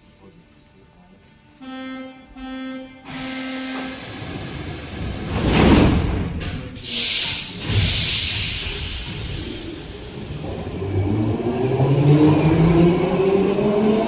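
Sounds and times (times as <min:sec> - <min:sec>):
air hiss: 0:06.8 - 0:10.5.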